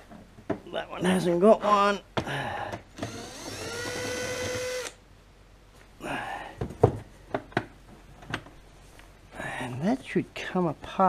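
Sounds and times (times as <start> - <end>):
knocks and clunks of handling: 0.0 - 0.7, 6.6 - 8.6
cordless drill motor whine: 3.0 - 5.0.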